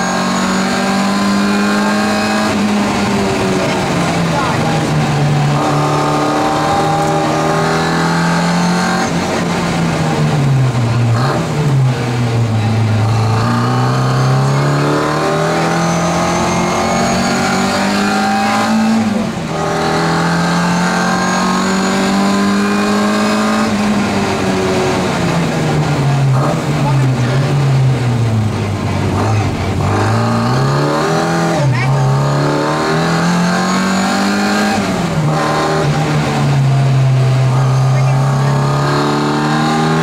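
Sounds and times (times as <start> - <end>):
car engine revving hard: 0.0 - 40.0.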